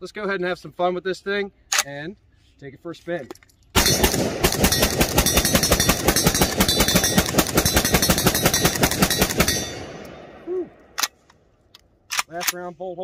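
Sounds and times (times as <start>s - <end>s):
rifle bolt locking open: 1.7s - 1.9s, 11.0s - 12.6s
rifle shots: 3.8s - 11.2s.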